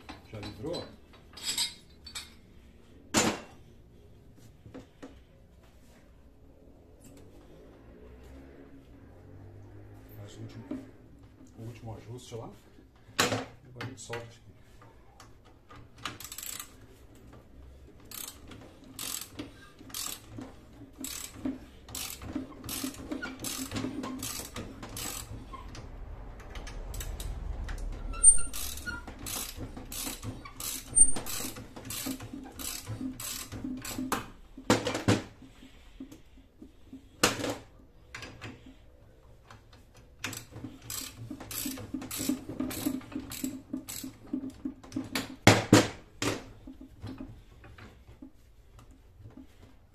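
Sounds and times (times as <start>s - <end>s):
ratchet wrench clicking: 16.0s - 16.8s, 18.0s - 20.4s, 21.0s - 25.4s, 28.2s - 34.2s, 40.2s - 44.2s.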